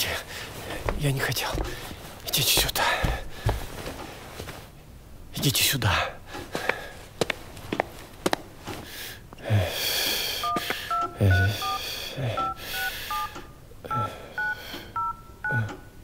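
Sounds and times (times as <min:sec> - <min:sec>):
phone keypad beeps: 0:10.4 - 0:11.8, 0:12.4 - 0:15.9.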